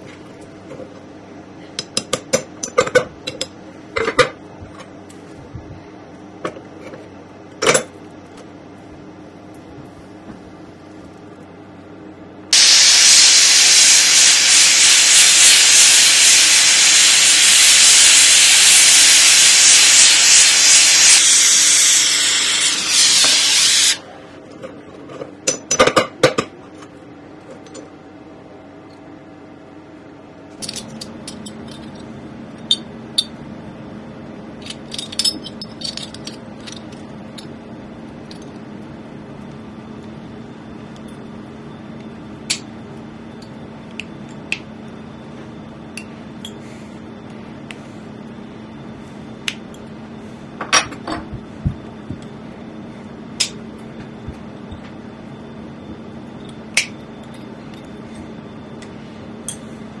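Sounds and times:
steady low hum: 0:00.0 - 1:00.0
metallic clinks of tools: 0:34.6 - 0:37.5.

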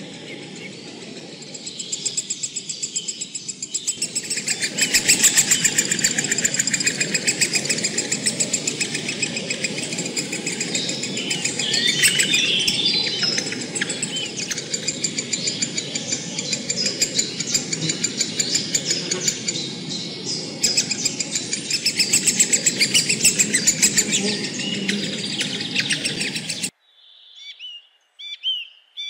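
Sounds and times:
nestlings high calls: 0:00.0 - 0:26.7
sharp chirps: 0:00.4 - 0:26.7
steady low rumble: 0:03.7 - 0:26.7.

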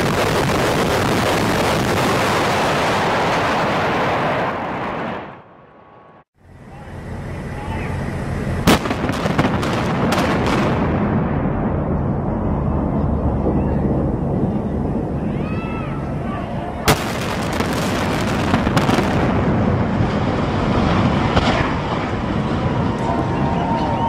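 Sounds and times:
explosive charges cracking: 0:00.0 - 0:05.5, 0:08.6 - 0:15.0, 0:16.8 - 0:23.3
building collapsing roar: 0:00.0 - 0:06.3, 0:08.5 - 0:24.0
steady background noise: 0:06.0 - 0:24.0.

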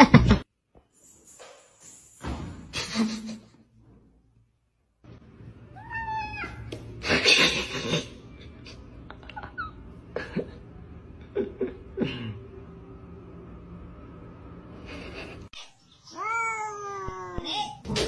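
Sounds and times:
cats meowing: 0:05.7 - 0:06.8, 0:16.1 - 0:17.8
cat harsh noise: 0:05.8 - 0:06.7.

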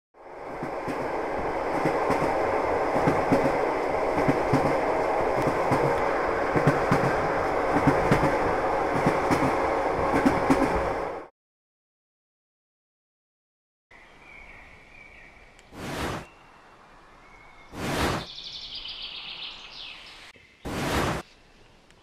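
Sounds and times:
train rumble: 0:00.2 - 0:11.3
wheels clicking on rails: 0:00.4 - 0:11.3.

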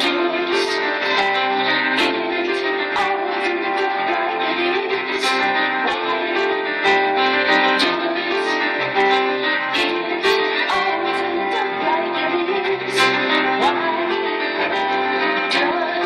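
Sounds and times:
bowed strings: 0:00.0 - 0:16.0
piano: 0:00.0 - 0:16.0.

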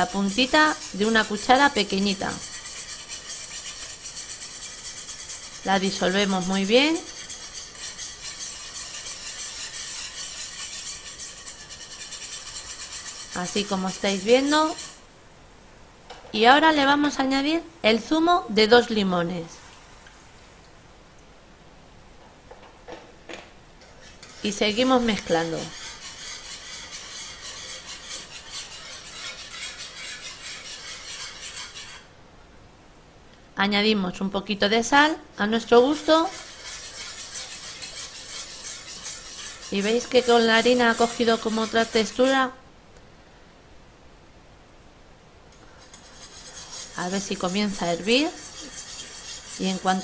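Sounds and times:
wire whisk scraping a pan: 0:00.0 - 0:15.1, 0:23.9 - 0:32.1, 0:35.6 - 0:42.6, 0:45.6 - 0:50.0.

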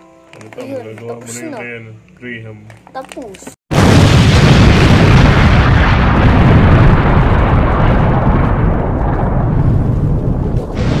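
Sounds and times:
explosion rumble: 0:03.7 - 0:11.0.

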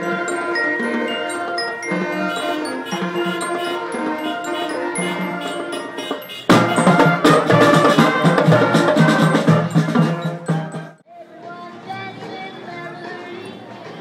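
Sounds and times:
brass and saxophones playing: 0:00.0 - 0:11.0
drums beating: 0:01.8 - 0:11.0.

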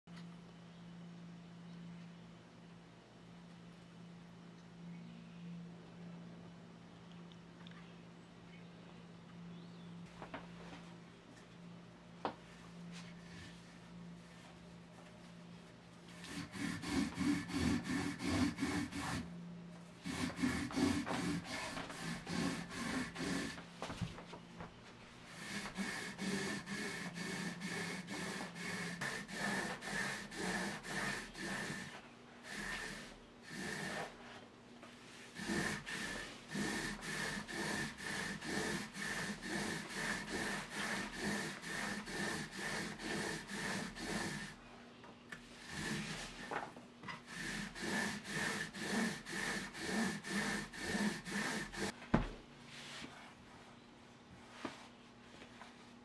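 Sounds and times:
rope rasping through metal eye: 0:47.2 - 0:51.9.

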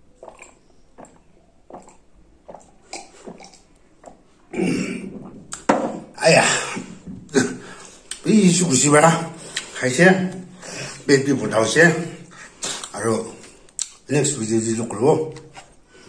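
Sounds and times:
man gulping water: 0:00.0 - 0:08.3
man burping: 0:04.5 - 0:05.3, 0:06.0 - 0:07.8.

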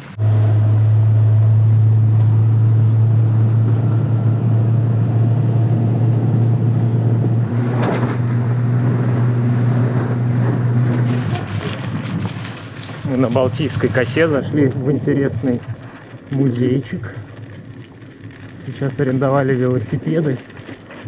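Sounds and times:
motorboat engine drone: 0:00.0 - 0:12.5
water wash: 0:00.0 - 0:21.0.

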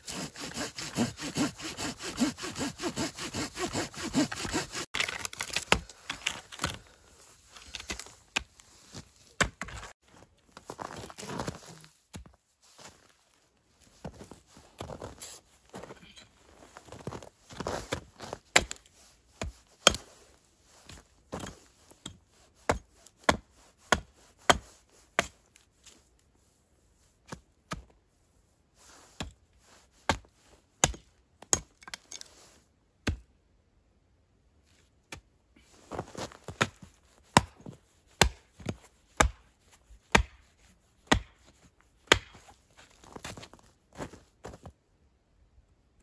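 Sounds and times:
hatchet chopping wood: 0:00.1 - 0:05.8, 0:19.4 - 0:20.0, 0:30.8 - 0:32.1, 0:33.0 - 0:33.3, 0:36.6 - 0:37.6, 0:38.2 - 0:39.5, 0:40.1 - 0:40.5, 0:41.1 - 0:41.4, 0:42.1 - 0:42.5.

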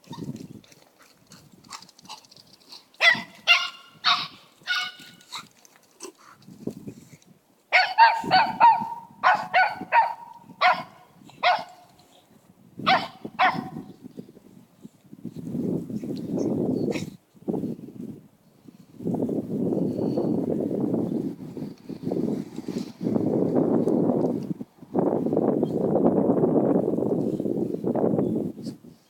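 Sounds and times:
puppy barking high-pitched yaps: 0:03.0 - 0:05.2, 0:07.7 - 0:11.8, 0:12.9 - 0:13.8.

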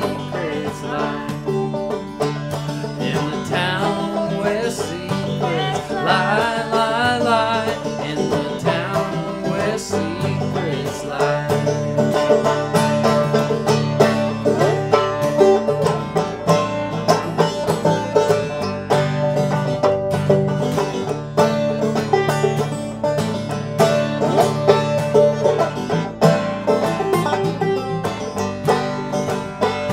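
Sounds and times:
man singing with vibrato: 0:00.0 - 0:01.9, 0:02.8 - 0:12.0
acoustic guitar strumming: 0:00.0 - 0:29.9
banjo picking: 0:00.0 - 0:29.9.

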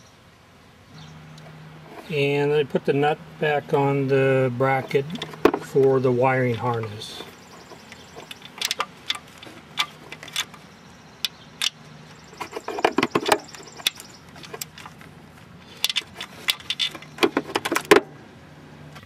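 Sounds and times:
ratchet wrench clicking: 0:07.6 - 0:10.6.

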